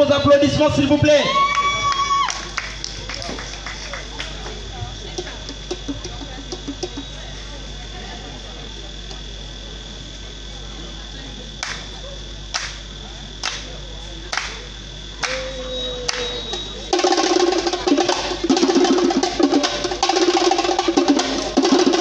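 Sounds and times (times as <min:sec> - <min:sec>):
high-pitched whine: 0:00.0 - 0:22.0
hands clapping: 0:01.4 - 0:07.0, 0:11.6 - 0:11.9, 0:12.5 - 0:12.8, 0:13.4 - 0:16.8, 0:21.2 - 0:21.6
long held note: 0:15.2 - 0:17.2.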